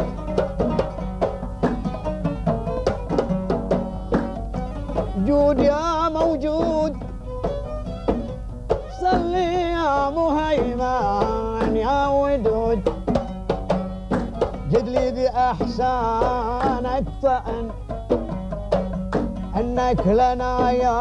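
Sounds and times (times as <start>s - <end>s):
hand drum beating: 0.0s - 21.0s
oud: 0.0s - 21.0s
man singing: 4.5s - 7.2s, 8.8s - 21.0s.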